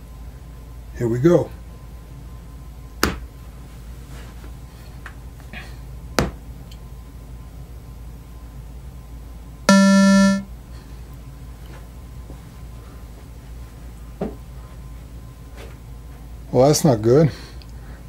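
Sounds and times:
loud buzzy beep: 9.7s - 10.5s.

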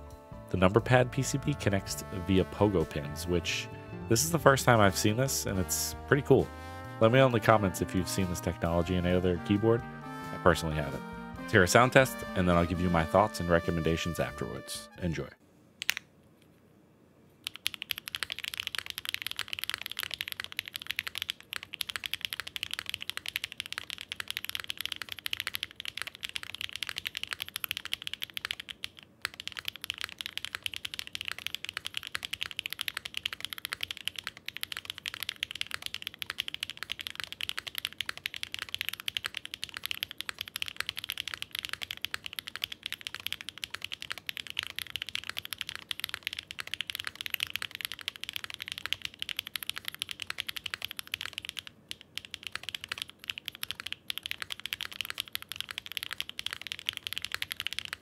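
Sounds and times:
mechanical keyboard typing: 17.4s - 58.0s.

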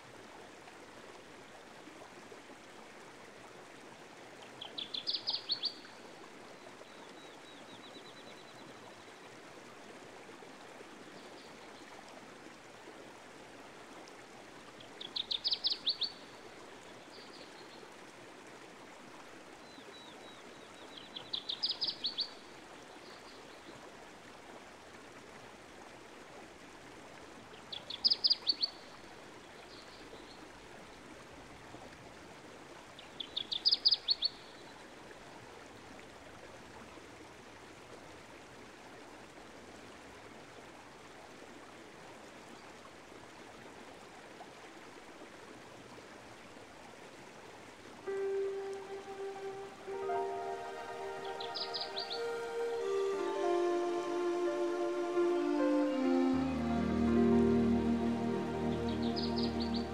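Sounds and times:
running water: 40.9s - 59.9s
songbird trilling: 51.3s - 52.4s.

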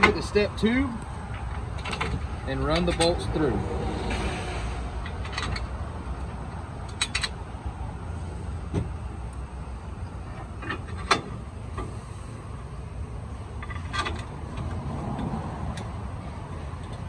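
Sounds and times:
steady low rumble: 0.0s - 17.0s
metal clicks and knocks: 1.3s - 3.2s, 5.0s - 7.4s.

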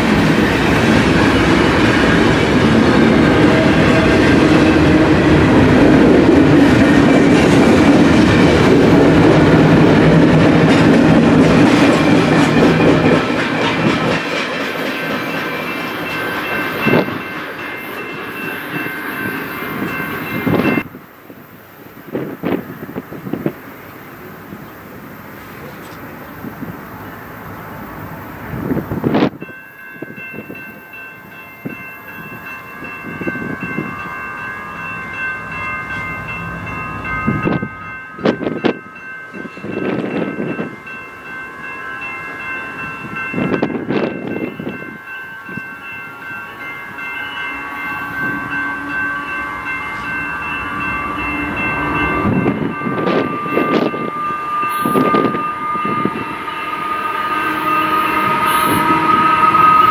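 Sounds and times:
train rumble: 0.0s - 59.9s
train wheels squealing: 47.2s - 59.9s.

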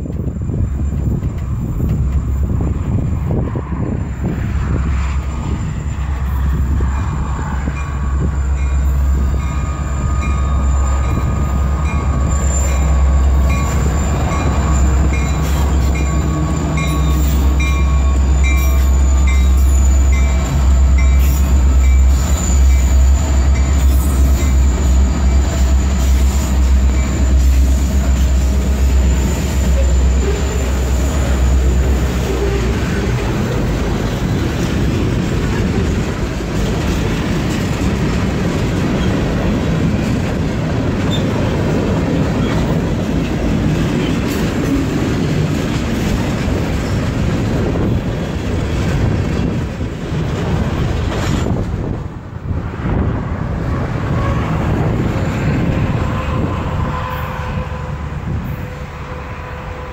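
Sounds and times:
freight cars rolling on rails: 0.0s - 59.9s
locomotive engines droning: 0.0s - 59.9s
high wheel squeal: 5.3s - 33.6s.

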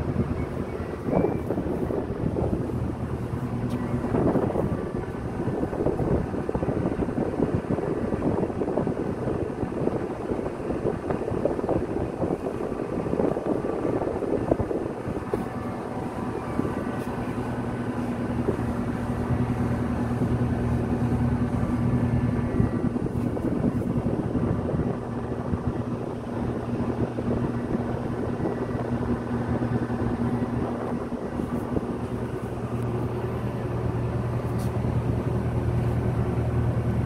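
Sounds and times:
low machinery hum: 0.0s - 37.0s
wind buffeting microphone: 0.0s - 37.0s.

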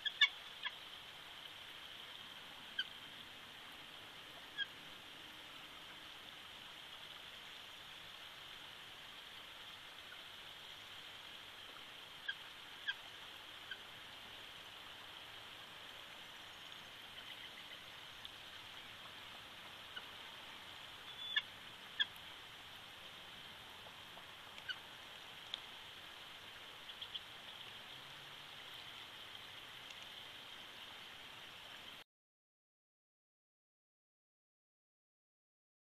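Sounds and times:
steady hiss: 0.0s - 32.0s
eagles chirping: 21.0s - 22.2s.

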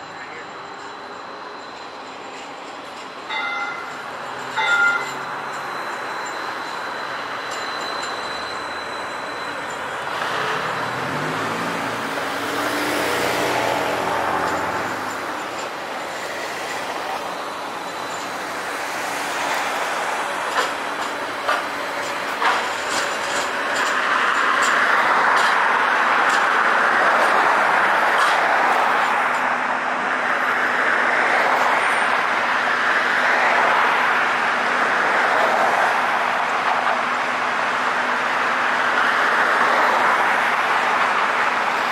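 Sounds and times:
streetcar motor: 0.0s - 41.9s
passing cars: 3.3s - 41.9s.

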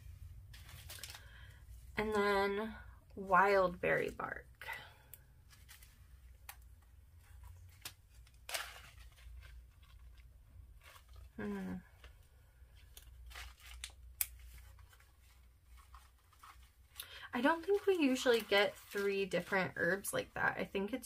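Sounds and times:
plastic bags rustling and crinkling: 0.3s - 2.2s, 3.3s - 6.4s, 7.1s - 20.7s
woman humming: 11.4s - 11.9s.

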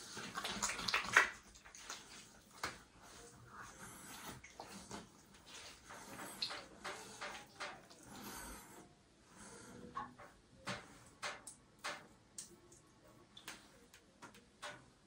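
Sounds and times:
faint water splashes: 0.0s - 8.9s.

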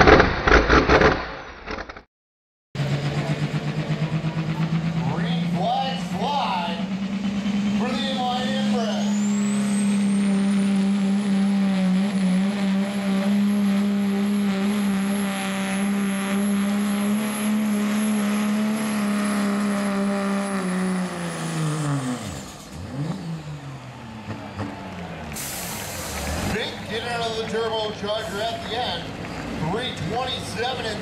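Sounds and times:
diesel engine at full throttle: 2.8s - 31.0s
high turbocharger whistle: 5.5s - 26.5s.

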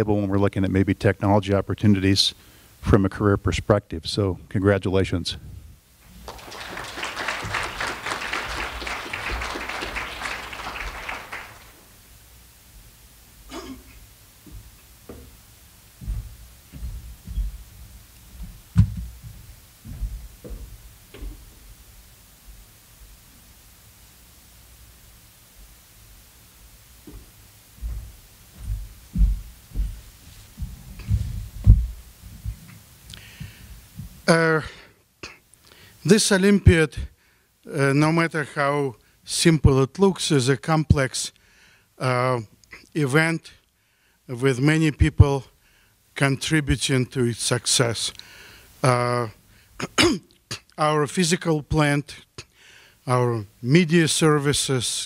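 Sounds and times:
faint steady hum: 0.0s - 55.0s
audience applauding: 6.1s - 11.9s
low muffled thuds: 14.4s - 21.5s, 27.1s - 32.7s.

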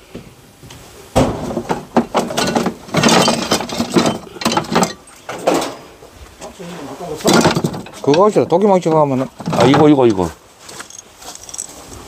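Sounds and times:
hand tools clattering: 1.5s - 5.9s, 7.2s - 12.0s.

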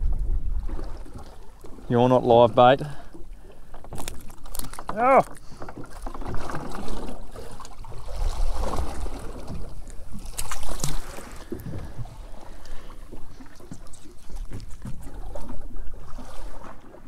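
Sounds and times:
wind rumbling on microphone: 0.0s - 1.6s, 7.9s - 16.6s
water against boat hull: 0.0s - 17.0s.

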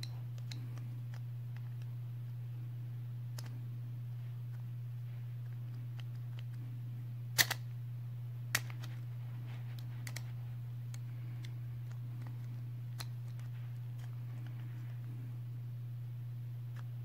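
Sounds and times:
steady low hum: 0.0s - 17.0s
plastic clicks: 3.3s - 3.6s, 8.5s - 9.0s, 9.7s - 10.3s.

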